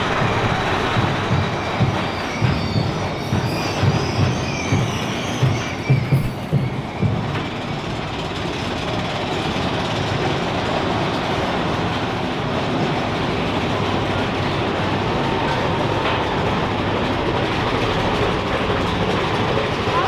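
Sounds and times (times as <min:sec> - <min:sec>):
roller coaster rattling and rumbling: 0:00.0 - 0:20.0
faint wheel squeal: 0:01.3 - 0:08.2.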